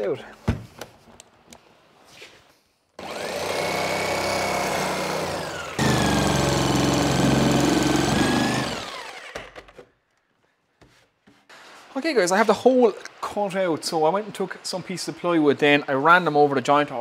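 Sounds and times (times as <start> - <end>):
electric jigsaw cutting plywood: 3.0 - 9.8.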